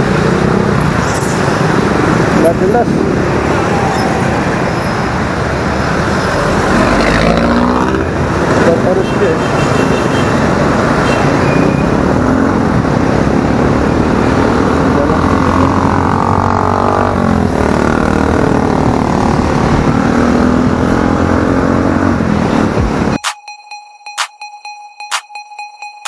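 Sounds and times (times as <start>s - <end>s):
wind rush over microphone: 17.1s - 21.2s.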